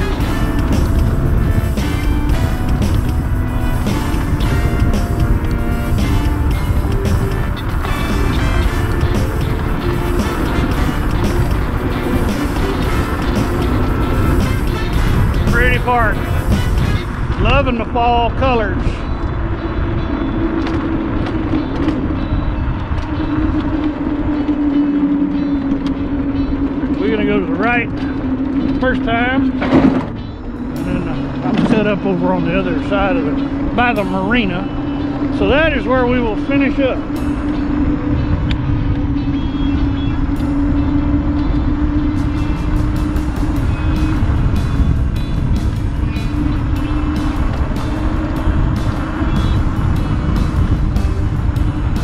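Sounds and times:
electric motor whining: 0.0s - 17.9s, 18.9s - 52.0s
wind and road noise: 0.0s - 52.0s.

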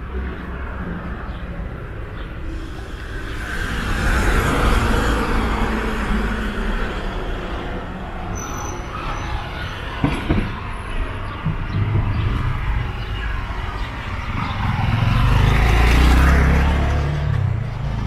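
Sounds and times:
low rumble of traffic: 0.0s - 18.0s
vehicle passing close by: 2.4s - 8.4s, 12.1s - 18.0s
high squeal: 2.4s - 14.7s.

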